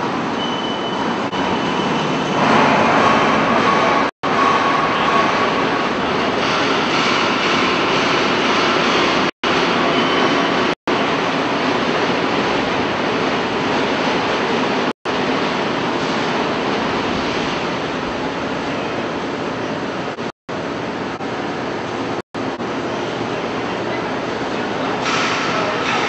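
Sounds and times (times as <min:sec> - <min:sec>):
hydraulic baler hum and hiss: 0:24.8 - 0:26.0.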